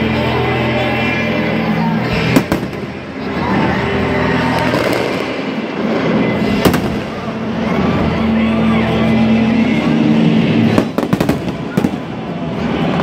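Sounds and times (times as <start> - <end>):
fireworks bursting: 2.1 - 3.3, 4.4 - 7.5, 10.6 - 13.0
sharp bangs: 2.1 - 3.3, 4.5 - 7.4, 10.7 - 12.2
fireworks crackle: 2.2 - 3.0, 4.4 - 7.4, 10.6 - 13.0.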